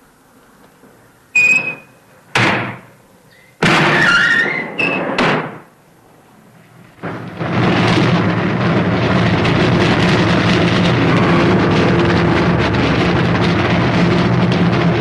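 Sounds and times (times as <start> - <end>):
metal furnace door clanking: 1.4 - 2.9, 3.6 - 5.7.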